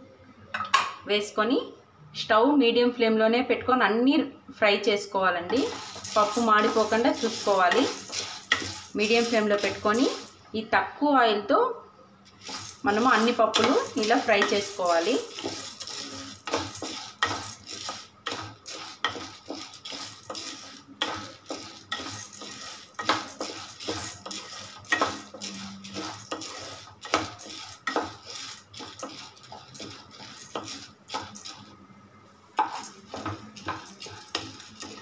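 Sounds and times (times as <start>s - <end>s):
wooden spatula scraping a pan: 5.5s - 10.4s, 12.3s - 31.8s, 32.6s - 35.0s
lentils rattling: 5.6s - 10.4s, 12.3s - 31.8s, 32.6s - 35.0s.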